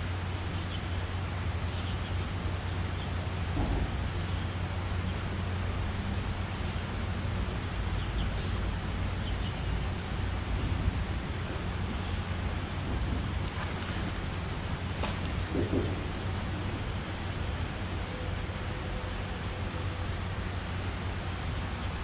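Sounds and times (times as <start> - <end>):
traffic drone on bridge: 0.0 - 22.0
wind on microphone: 10.2 - 18.0.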